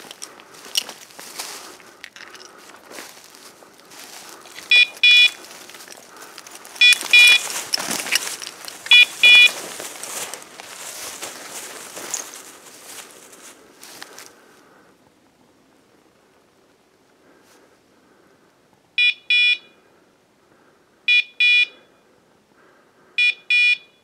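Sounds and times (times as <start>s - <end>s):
feet rustling through dry leaves: 0.0s - 14.6s
beeper collar double beeps: 4.7s - 5.4s, 6.8s - 7.5s, 8.9s - 9.5s, 21.1s - 21.8s, 23.2s - 24.0s.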